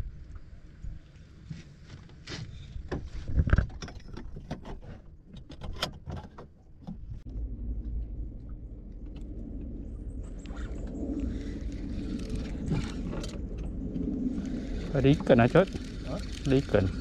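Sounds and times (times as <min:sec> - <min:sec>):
low steady rumble: 0:06.9 - 0:17.0
fishing rod and reel rattling: 0:08.9 - 0:17.0.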